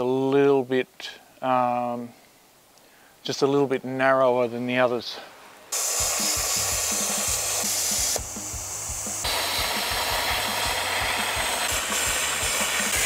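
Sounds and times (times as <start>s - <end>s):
welding arc crackling hiss: 5.7s - 13.0s.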